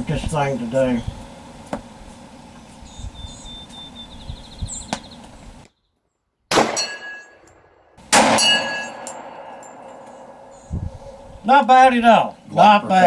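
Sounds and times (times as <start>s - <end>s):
pistol shots: 6.5s - 7.3s, 8.0s - 10.4s
metallic ringing of steel targets: 6.5s - 10.5s.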